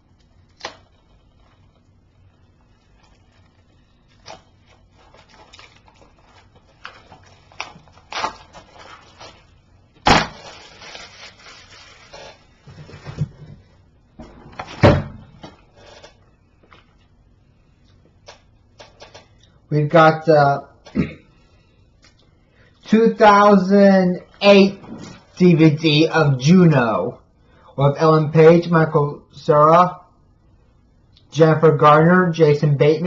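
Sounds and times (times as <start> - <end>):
plastic wrapping rustling: 0.0 - 17.2.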